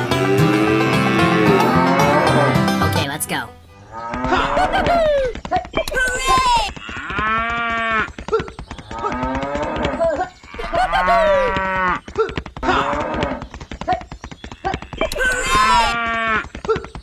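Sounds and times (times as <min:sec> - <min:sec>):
cattle mooing: 0:00.2 - 0:02.6.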